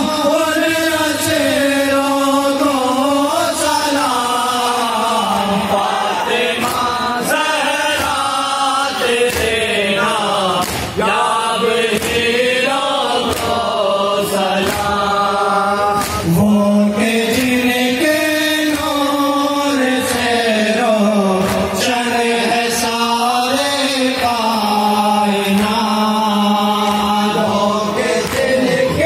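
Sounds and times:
man singing into microphone: 0.0 - 29.0
men chanting: 0.0 - 29.0
hands slapping chests: 9.1 - 9.7, 10.6 - 11.0, 11.9 - 12.3, 13.2 - 13.8, 14.6 - 15.1, 15.9 - 16.4, 21.4 - 21.8, 28.2 - 28.7.

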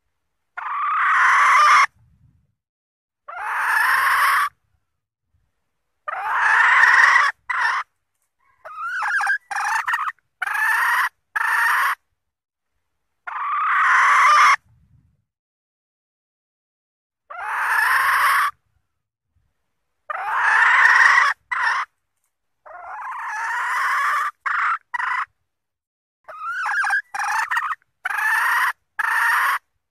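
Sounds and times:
junglefowl hen harsh calls: 0.6 - 2.0, 3.2 - 4.6, 6.0 - 12.0, 13.2 - 14.7, 17.3 - 18.6, 20.1 - 22.0, 22.6 - 25.4, 26.3 - 29.7.

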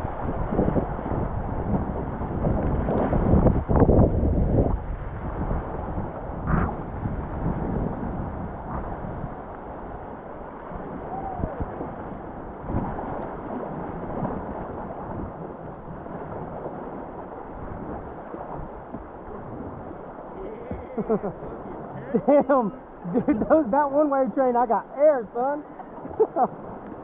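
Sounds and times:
wind buffeting microphone: 0.0 - 27.0
whitewater rapids rushing: 5.5 - 27.0.

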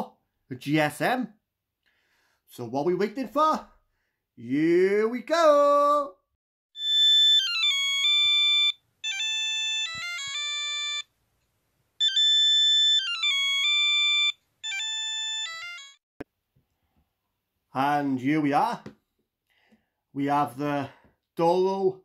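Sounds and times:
phone ringtone melody: 6.8 - 11.1, 12.0 - 16.0.

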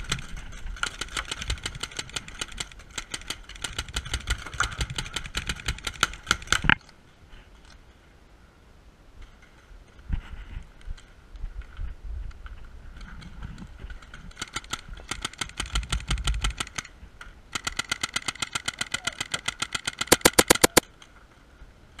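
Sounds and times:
paintball marker firing pops: 20.1 - 20.8.

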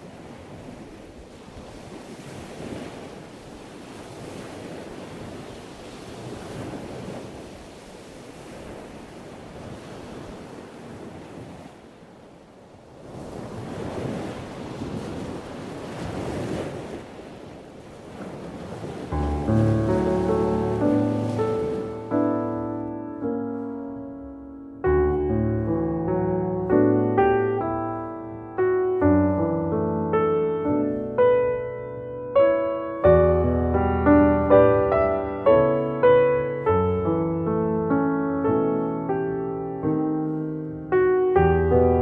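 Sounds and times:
ocean waves washing: 0.0 - 42.0.

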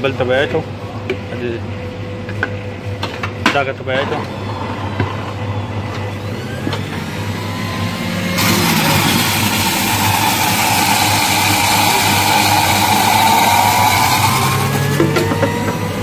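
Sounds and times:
juicer motor whirring: 4.0 - 16.0.

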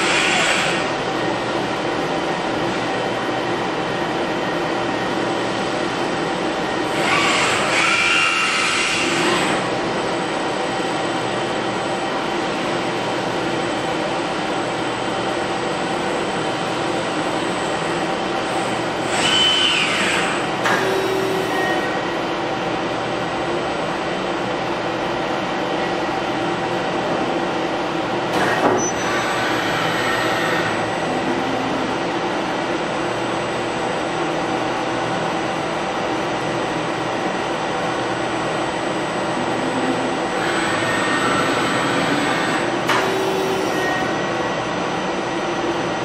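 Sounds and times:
robot arm servo motors whining: 6.9 - 9.6, 19.1 - 21.9, 40.4 - 44.1.

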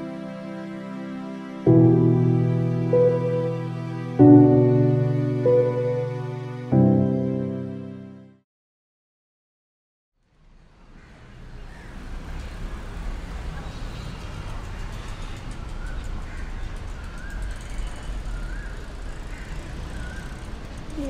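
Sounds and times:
road traffic hum: 10.3 - 21.0.

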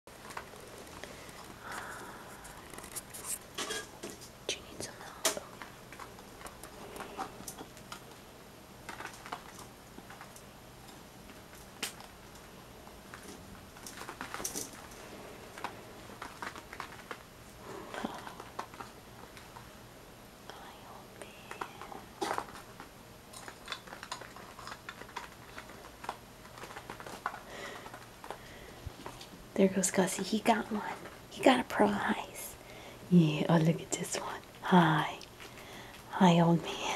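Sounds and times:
rats pawing wooden blocks: 8.8 - 19.7, 21.2 - 29.3.

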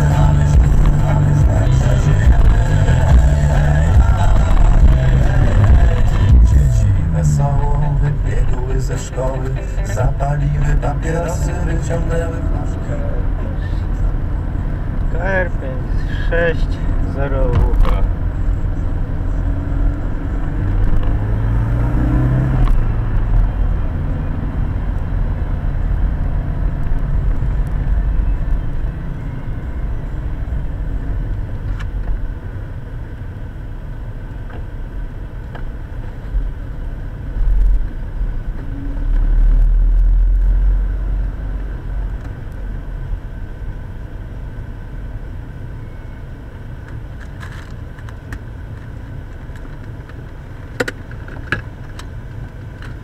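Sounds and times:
car engine and road noise: 0.0 - 53.0.

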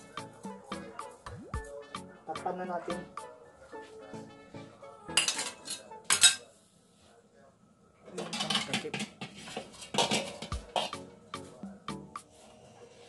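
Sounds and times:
spoon clanking on cookware: 5.2 - 6.4, 8.2 - 11.0.

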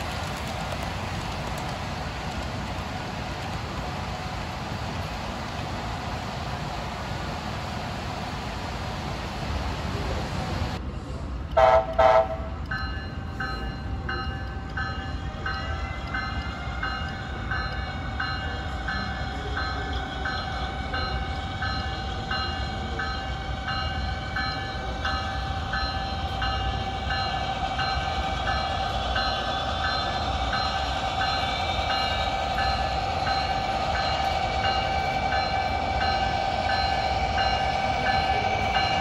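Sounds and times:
locomotive engine hum: 0.0 - 39.0
model locomotive bell ringing: 11.5 - 39.0.

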